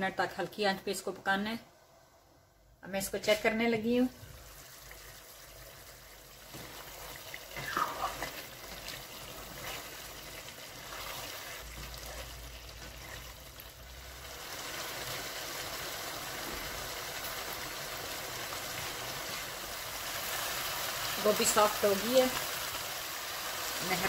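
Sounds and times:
curry simmering and bubbling: 0:04.2 - 0:21.2.

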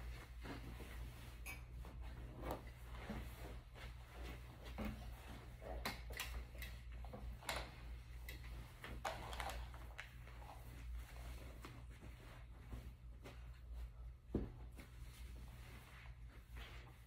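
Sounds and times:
comforter rustling: 0:00.0 - 0:05.8, 0:10.1 - 0:17.0.

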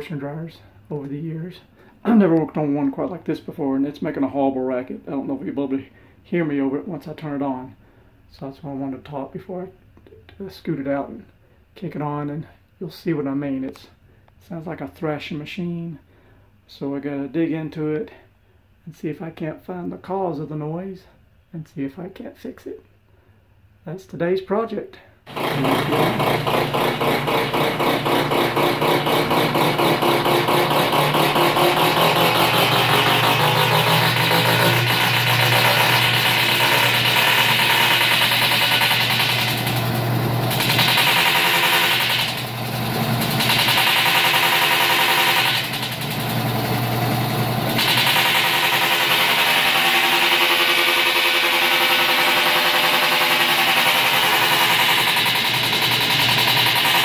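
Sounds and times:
washing machine rattling: 0:25.3 - 0:46.9, 0:47.6 - 0:57.0.

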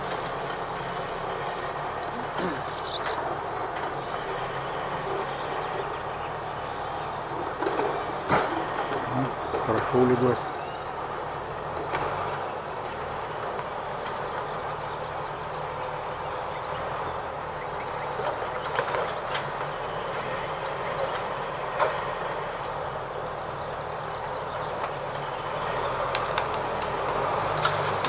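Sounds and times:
branches cracking: 0:00.0 - 0:04.3, 0:24.7 - 0:28.0
diesel engine running: 0:00.0 - 0:28.0.

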